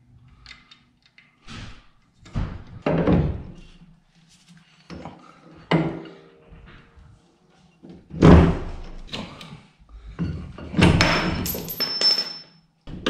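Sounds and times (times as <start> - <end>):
heavy metal parts clunking: 10.2 - 12.4.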